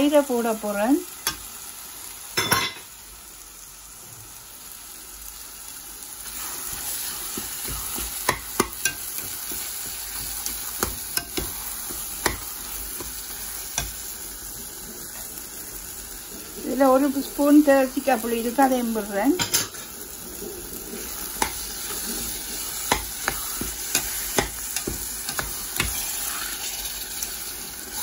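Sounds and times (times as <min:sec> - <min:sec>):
masala sizzling in a pan: 0:00.0 - 0:28.0
metal spoon scraping pan: 0:06.4 - 0:14.0, 0:21.0 - 0:26.6.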